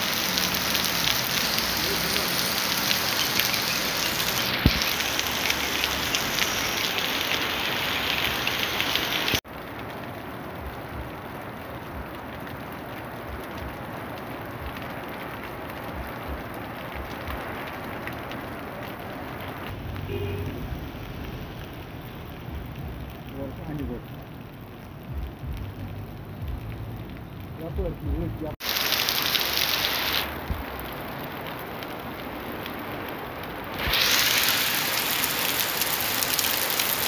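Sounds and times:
heavy rain on street: 0.0 - 37.0.

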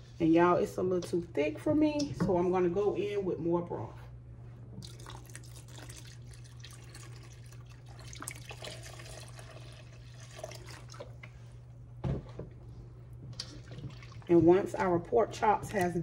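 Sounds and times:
broth pouring and splashing: 4.8 - 11.2, 13.3 - 14.4.

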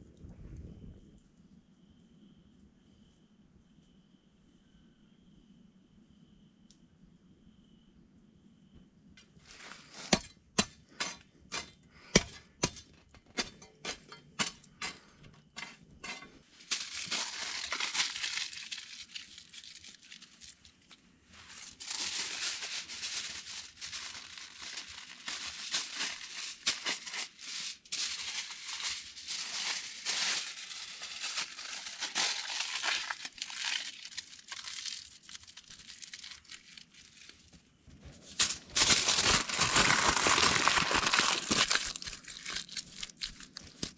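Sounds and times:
aluminium foil crinkling: 11.0 - 43.9.

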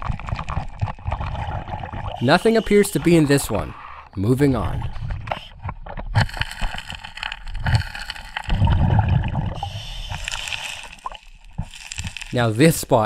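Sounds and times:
underwater gurgling bubbles: 0.0 - 12.4
low underwater rush: 0.0 - 12.7
stones clicking and knocking: 6.2 - 13.0.

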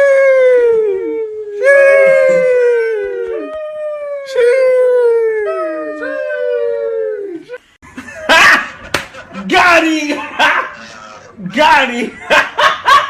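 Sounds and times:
dog howling: 0.0 - 7.6.

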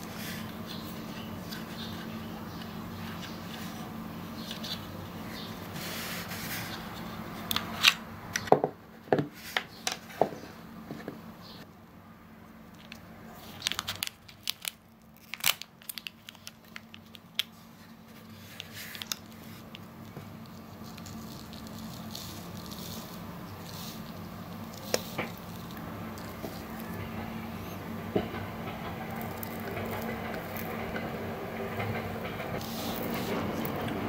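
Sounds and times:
foil sachet crinkling: 12.8 - 27.1
sachet tearing open: 12.9 - 17.6, 20.4 - 26.9.

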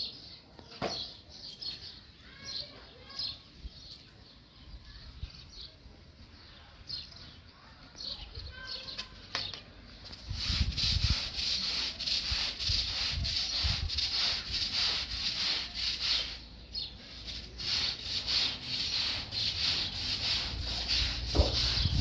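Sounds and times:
rapid rhythmic scraping strokes: 10.1 - 16.4, 17.1 - 22.0.

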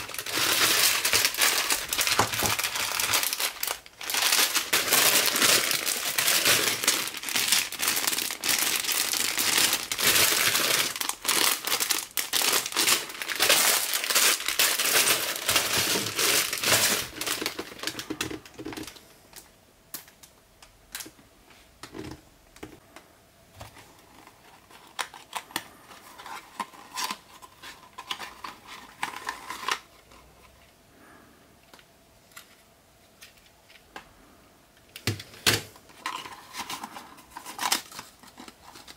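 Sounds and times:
plastic bags crinkling: 0.0 - 19.0.

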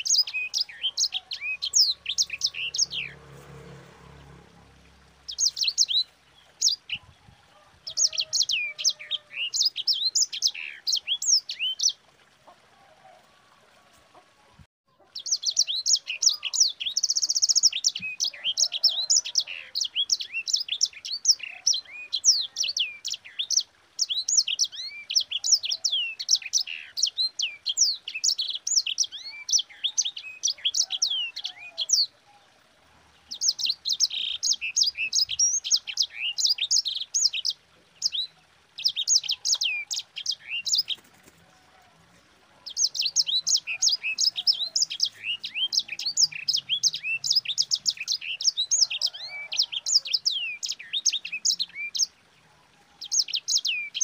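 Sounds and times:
canary singing: 0.0 - 3.4, 4.7 - 12.0, 33.3 - 41.4, 42.6 - 52.1.

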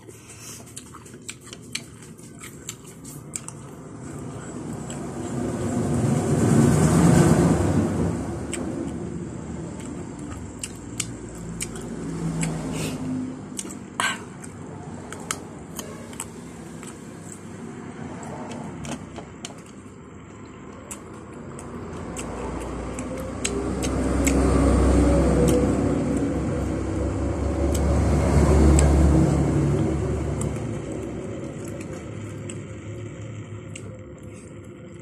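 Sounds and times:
person chewing with mouth smacks: 0.0 - 5.9, 9.7 - 26.4.

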